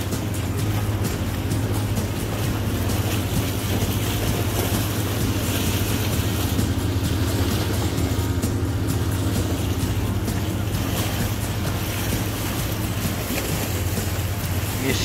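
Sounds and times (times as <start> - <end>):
boat engine droning: 0.0 - 15.0
water noise: 0.0 - 15.0
wind: 0.0 - 15.0.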